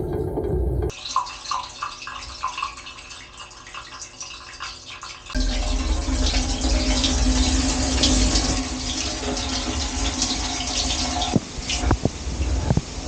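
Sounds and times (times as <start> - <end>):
low rumble: 0.0 - 0.9, 5.4 - 13.0
dishwasher pump humming: 0.0 - 13.0
water spraying inside dishwasher: 0.0 - 13.0.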